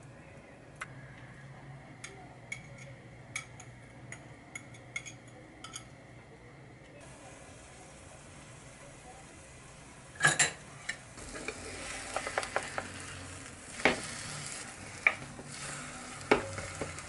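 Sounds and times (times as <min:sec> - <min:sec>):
patties sizzling in a frying pan: 0:07.0 - 0:17.0.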